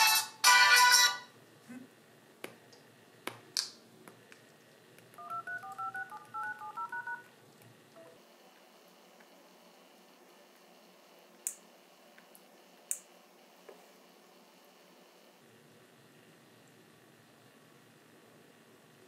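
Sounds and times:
phone ringtone: 5.2 - 7.3
telephone keypad tones: 5.2 - 7.3.

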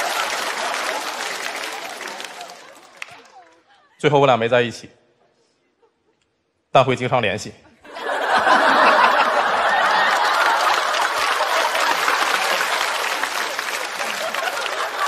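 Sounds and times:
audience applauding: 0.0 - 3.6, 8.1 - 15.0
audience laughing: 0.0 - 4.0, 7.8 - 15.0.

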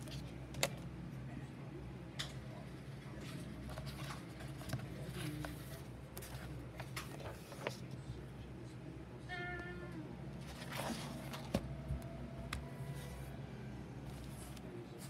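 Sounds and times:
pages rustling: 3.2 - 7.9, 10.4 - 11.6.

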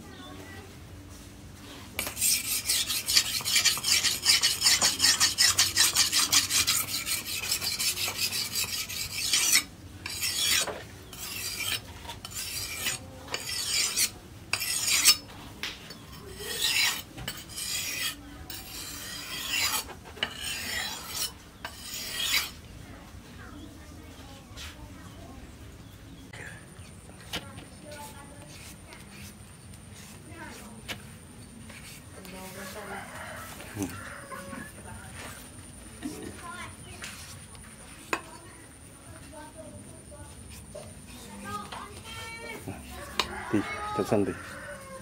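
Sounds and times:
knife scraping on whetstone: 2.0 - 22.6, 27.9 - 31.0, 31.7 - 35.4, 40.3 - 45.0.

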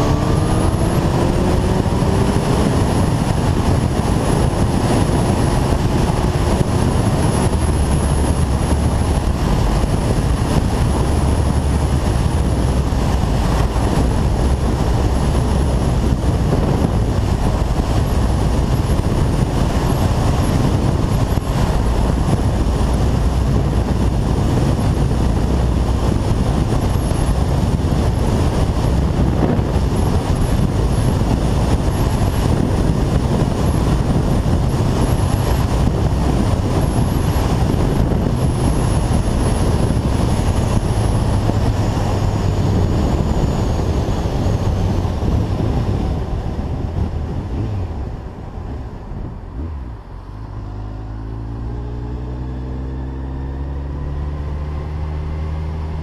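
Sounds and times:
motorcycle engine running: 0.0 - 56.0
wind and road noise: 0.0 - 56.0.

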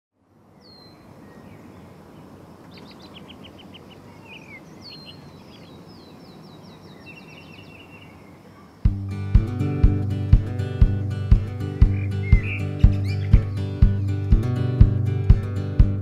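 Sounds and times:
outdoor background hush: 0.2 - 16.0
birds singing and calling: 0.6 - 9.0, 11.2 - 14.4.

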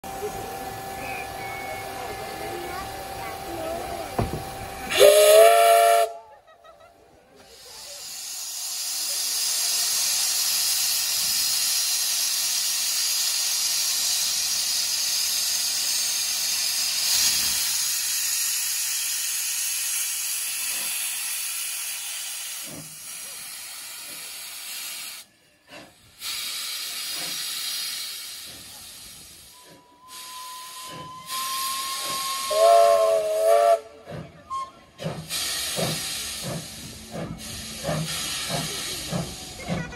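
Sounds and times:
loud hiss of steam: 0.1 - 6.2, 7.4 - 34.3, 35.0 - 39.9
steam locomotive whistle: 4.9 - 6.2, 29.5 - 35.0.

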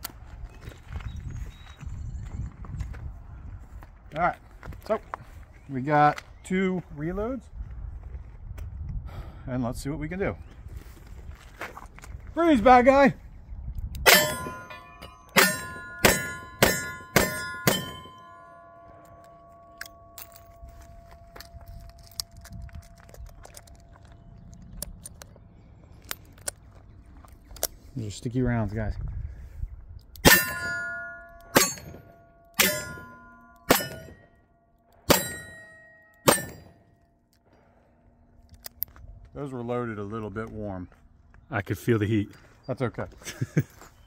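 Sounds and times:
steel targets ringing: 14.0 - 23.1, 30.2 - 37.0.

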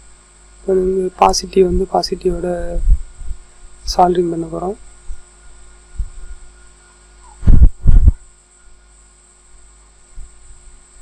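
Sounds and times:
faint electrical hum: 0.0 - 11.0
heavy low thumps: 2.6 - 3.5, 7.4 - 8.2.

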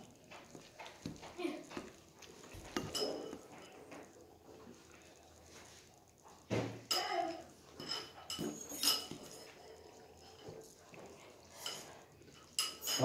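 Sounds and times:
utensil clinking on ceramic bowl: 2.7 - 3.9, 6.9 - 10.6, 11.5 - 13.0.

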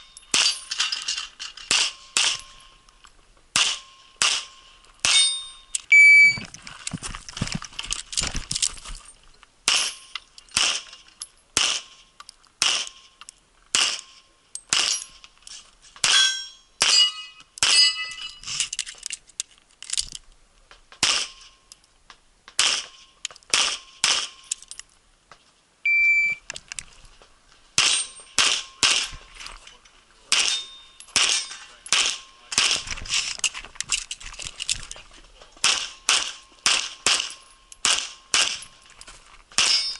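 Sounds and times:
bullets dinging on steel targets: 0.0 - 2.9, 3.5 - 6.3, 9.7 - 12.0, 12.6 - 15.2, 16.0 - 18.4, 27.8 - 29.2, 30.3 - 32.8, 35.6 - 38.8, 39.6 - 39.9
pistol shots: 1.7 - 2.5, 3.6 - 5.4, 10.6 - 10.9, 11.6 - 12.0, 12.6 - 13.1, 13.7 - 15.0, 21.0 - 21.4, 22.6 - 24.4, 27.8 - 29.1, 30.3 - 32.9, 35.6 - 38.7.

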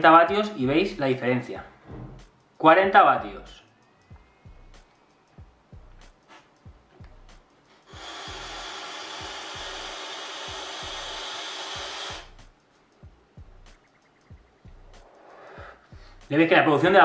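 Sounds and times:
vape coil hissing: 7.8 - 12.4.

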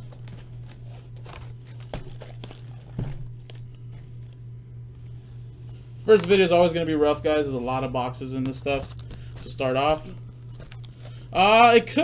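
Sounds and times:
crinkling: 0.0 - 11.4
steady low hum: 0.0 - 12.0.

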